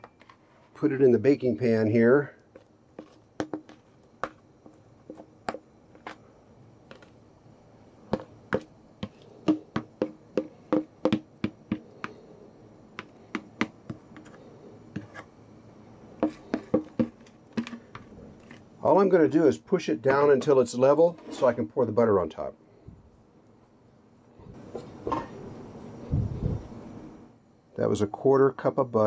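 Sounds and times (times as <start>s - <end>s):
spoon scraping plastic bowl: 14.1s - 15.3s.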